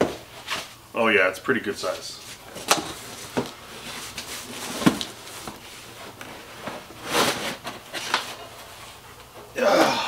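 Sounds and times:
cardboard and foam scraping: 3.2 - 8.2.

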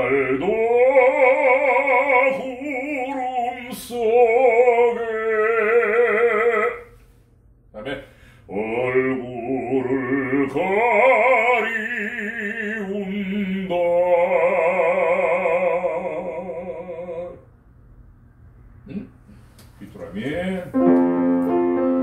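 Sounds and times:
man singing operatic notes: 0.0 - 6.9, 8.5 - 17.5.

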